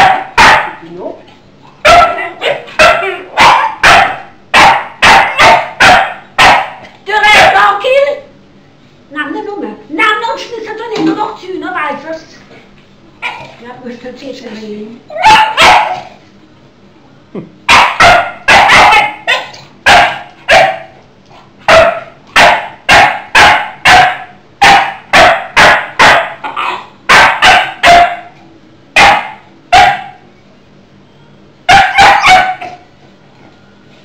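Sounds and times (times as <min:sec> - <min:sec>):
dog barking: 0:00.0 - 0:00.8, 0:01.8 - 0:07.8, 0:13.2 - 0:13.5, 0:15.1 - 0:16.2, 0:17.7 - 0:21.0, 0:21.6 - 0:28.4, 0:29.0 - 0:30.2, 0:31.7 - 0:32.8.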